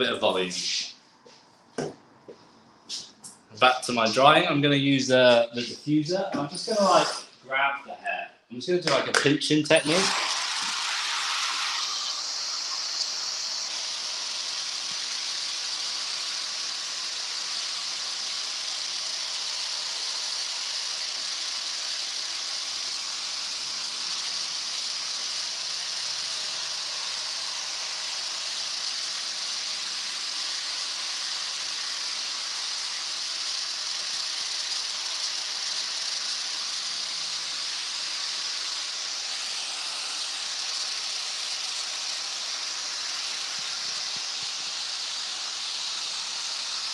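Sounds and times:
hair dryer blowing: 9.8s - 46.9s.

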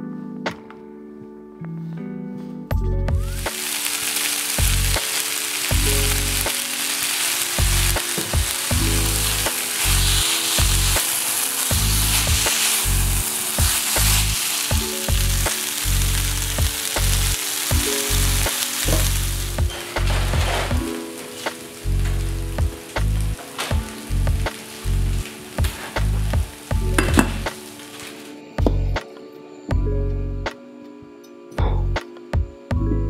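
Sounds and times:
background music with low notes: 0.0s - 33.0s
food sizzling in hot oil: 3.3s - 28.2s
spatula stirring in pan: 3.6s - 21.8s.

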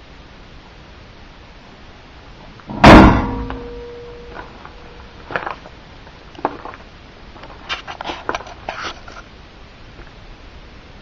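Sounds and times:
metal hood ringing: 2.7s - 5.4s
footsteps crunching on gravel: 4.2s - 9.2s.

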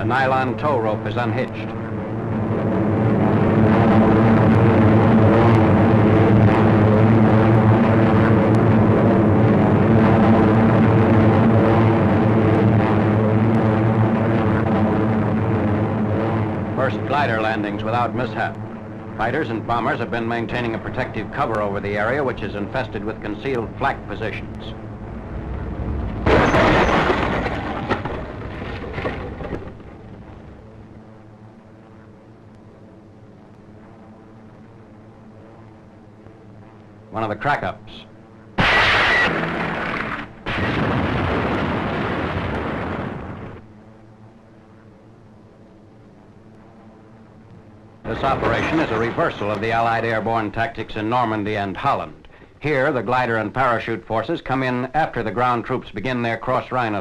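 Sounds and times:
loud rushing crackling noise: 0.0s - 31.5s, 38.6s - 43.7s, 47.6s - 52.2s
low rumble: 0.0s - 37.1s, 38.1s - 52.0s
faint hum: 0.0s - 57.0s
propeller aircraft engines droning: 0.0s - 57.0s.

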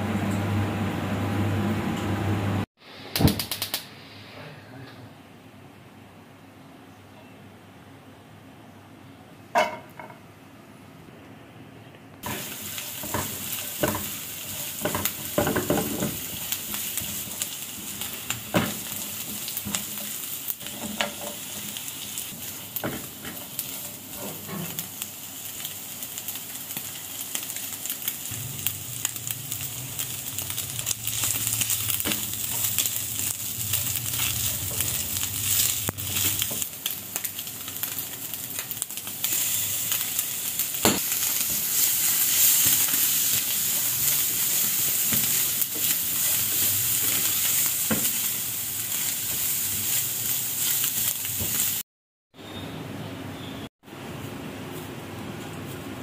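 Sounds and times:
onion sizzling in oil: 12.2s - 51.8s.

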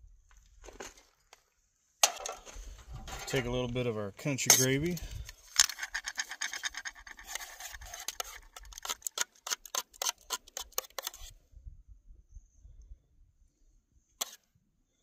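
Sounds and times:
metal spoon scraping metal pot: 4.4s - 4.9s, 5.7s - 11.3s.

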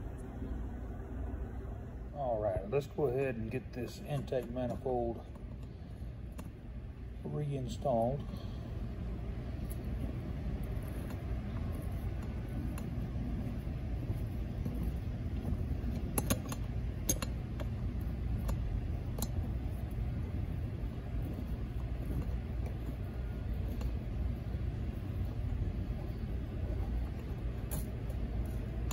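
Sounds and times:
steady low rumble: 0.0s - 28.9s.

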